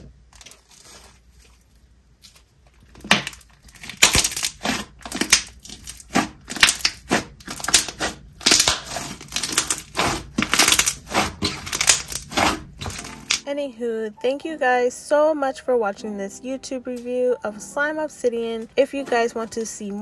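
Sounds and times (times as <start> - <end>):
slime squishing and crackling: 0.0 - 13.4.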